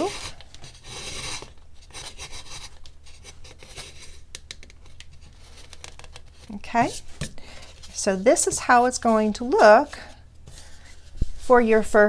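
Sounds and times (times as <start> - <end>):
leather lace rubbing on gourd: 7.8 - 10.1.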